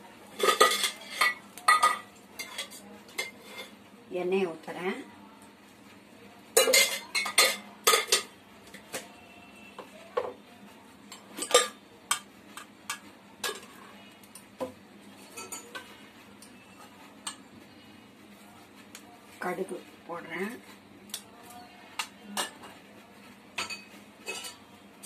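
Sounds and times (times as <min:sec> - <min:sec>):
metal utensils clinking: 0:00.3 - 0:03.7, 0:06.6 - 0:08.3, 0:11.1 - 0:13.8, 0:15.3 - 0:15.9, 0:23.6 - 0:24.7.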